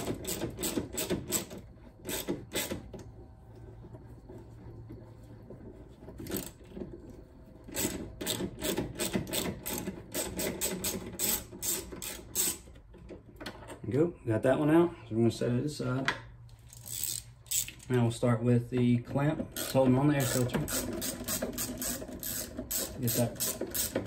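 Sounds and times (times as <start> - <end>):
ratchet clicking: 0.0 - 2.8, 7.7 - 12.7, 16.7 - 18.0, 19.6 - 24.0.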